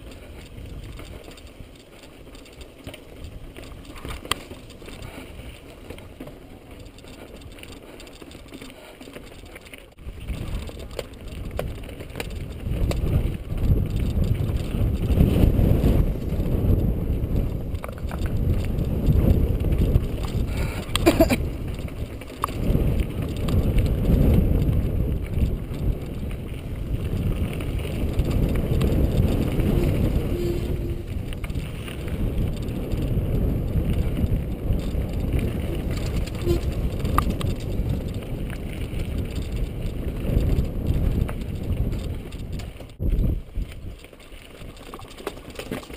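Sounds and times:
bike knocks and rattles: 0:00.0 - 0:45.9
bike tyres rumbling over rock: 0:00.0 - 0:45.9
wind on microphone: 0:10.0 - 0:44.0.

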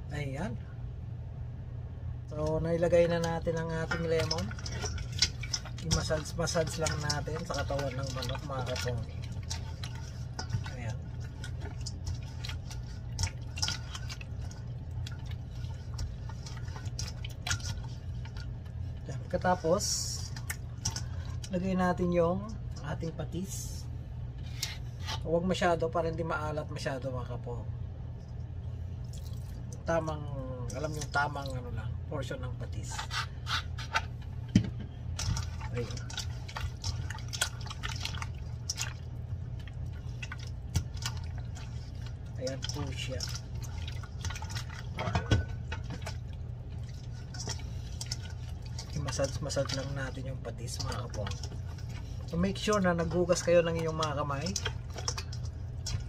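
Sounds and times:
steady low hum: 0:00.0 - 0:56.0
liquid dripping: 0:02.3 - 0:23.6, 0:28.2 - 0:31.9, 0:34.0 - 0:56.0
hands squishing raw chicken: 0:02.4 - 0:21.8, 0:35.1 - 0:56.0.

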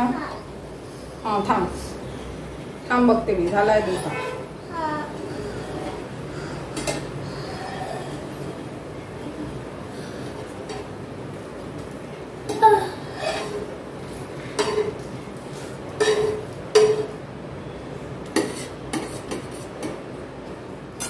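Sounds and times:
metal spatula scraping griddle: 0:13.1 - 0:17.1.

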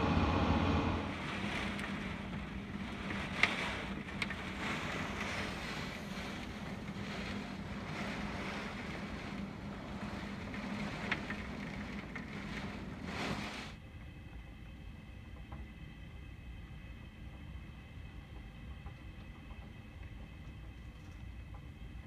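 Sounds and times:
wind rushing: 0:00.0 - 0:01.9
heavy rain: 0:00.0 - 0:13.8.

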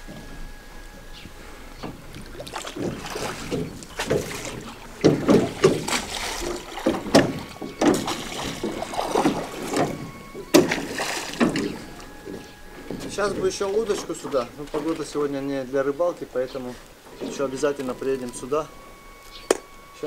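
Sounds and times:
oars splashing in water: 0:00.0 - 0:20.0
oars knocking in oarlocks: 0:01.8 - 0:15.4.

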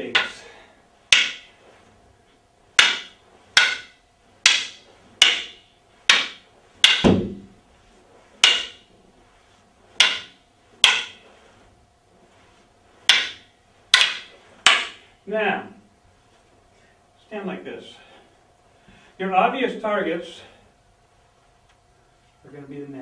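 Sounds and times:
wooden sticks clacking together: 0:00.1 - 0:00.5, 0:01.1 - 0:01.6, 0:02.8 - 0:07.2, 0:08.4 - 0:08.9, 0:10.0 - 0:11.2, 0:13.0 - 0:15.1
heavier deeper wooden knock: 0:06.1 - 0:07.5.

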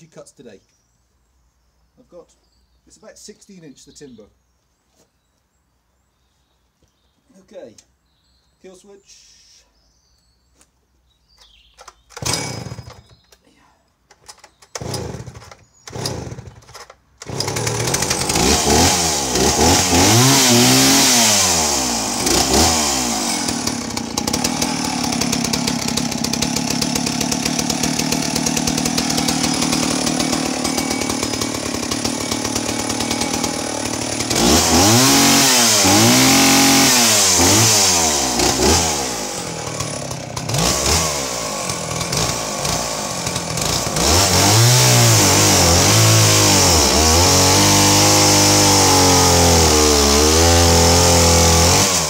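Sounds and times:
chainsaw engine revving: 0:11.9 - 0:13.2, 0:14.2 - 0:52.0.

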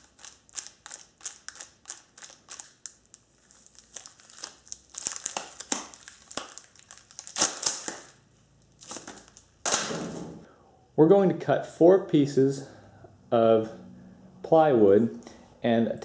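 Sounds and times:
cardboard and tape crinkling: 0:00.0 - 0:10.0.

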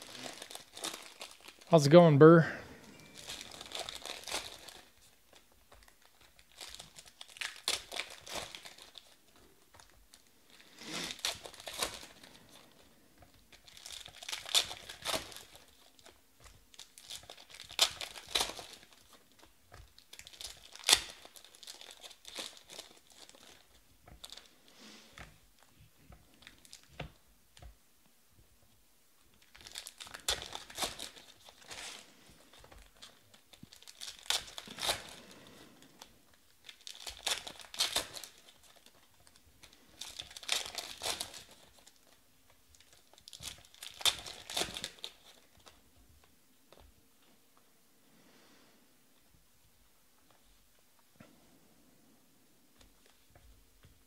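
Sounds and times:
foil wrappers crinkling and tearing: 0:00.0 - 0:01.8, 0:02.8 - 0:25.7, 0:26.3 - 0:27.1, 0:29.3 - 0:45.8.

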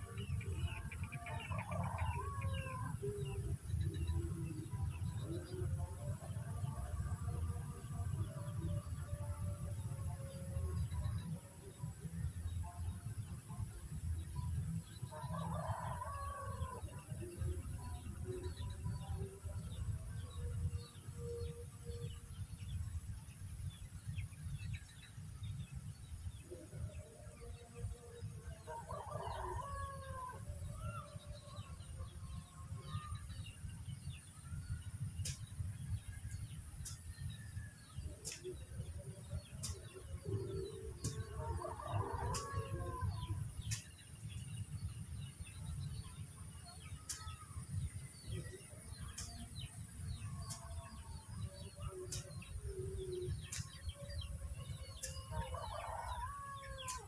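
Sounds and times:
roosters crowing: 0:28.7 - 0:30.5, 0:41.4 - 0:43.7, 0:55.3 - 0:57.0
steady low rumble: 0:29.5 - 0:56.8.

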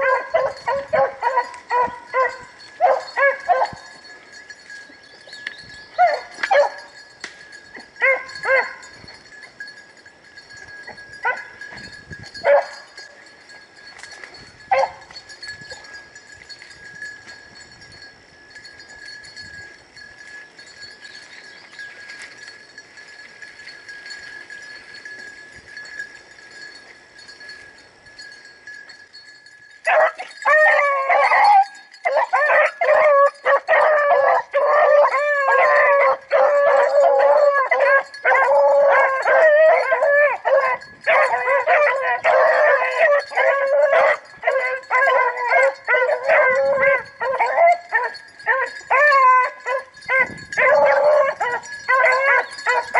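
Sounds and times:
pack of dogs baying: 0:00.0 - 0:04.8, 0:05.9 - 0:07.0, 0:07.8 - 0:09.0, 0:10.9 - 0:11.7, 0:12.4 - 0:13.2, 0:14.7 - 0:16.0, 0:29.8 - 0:52.9.

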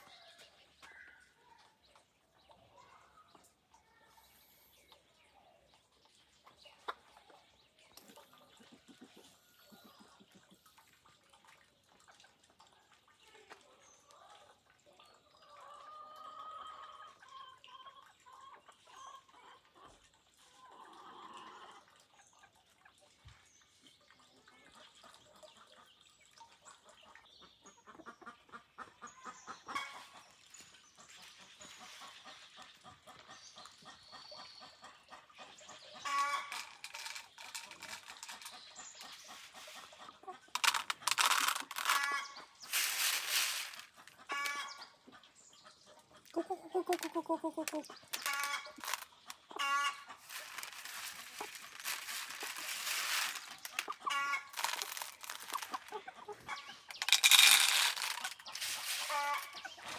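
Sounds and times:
chickens clucking: 0:00.0 - 0:59.9
rustling: 0:42.7 - 0:44.0, 0:50.2 - 0:55.9, 0:57.0 - 0:59.6.

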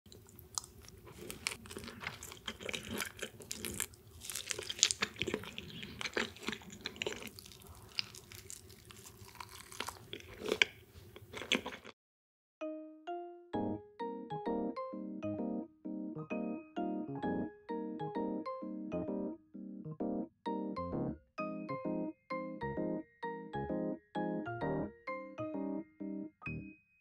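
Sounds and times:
close chewing with mouth smacks: 0:00.1 - 0:12.0.

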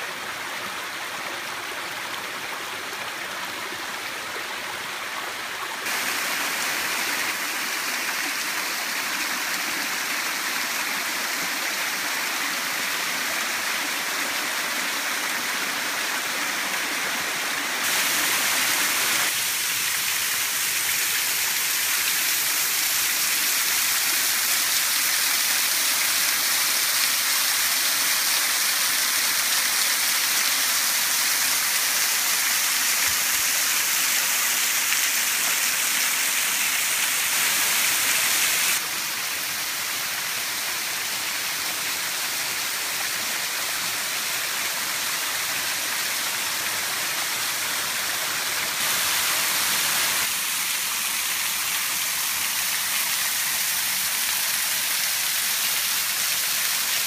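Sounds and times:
waterfall rushing and splashing: 0:00.0 - 0:57.0.

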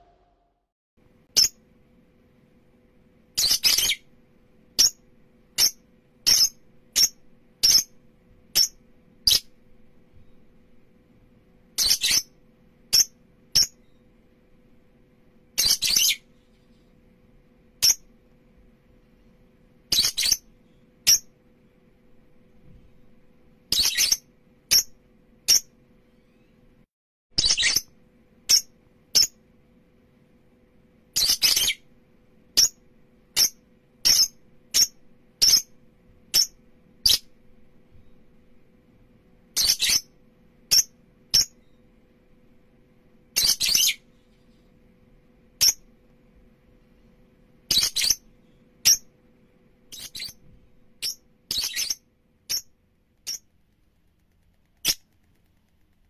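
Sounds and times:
faint steady hum: 0:00.0 - 0:26.9, 0:27.7 - 0:56.0
lovebirds chirping: 0:03.4 - 0:04.1, 0:15.6 - 0:16.9, 0:19.9 - 0:21.8, 0:43.4 - 0:44.6, 0:47.7 - 0:49.1, 0:49.9 - 0:50.4, 0:51.0 - 0:53.5.

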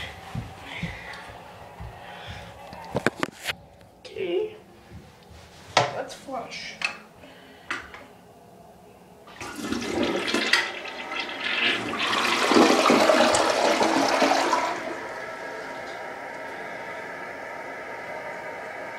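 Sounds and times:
toilet flush click: 0:09.3 - 0:15.1
water rushing down toilet bowl: 0:09.3 - 0:15.5.

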